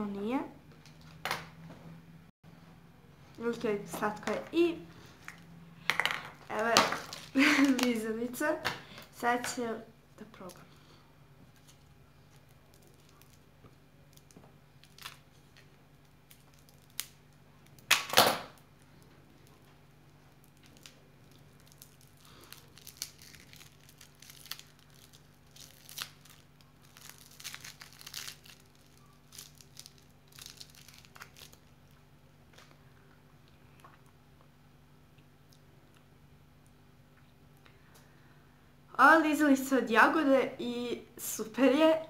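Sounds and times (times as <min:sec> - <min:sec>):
plastic film crinkling: 0:05.2 - 0:08.2, 0:11.5 - 0:32.8
plastic wrapper ripping: 0:05.3 - 0:08.0, 0:11.6 - 0:19.7, 0:20.3 - 0:32.8
scissors cutting plastic wrapper: 0:06.5 - 0:08.0, 0:20.5 - 0:31.7.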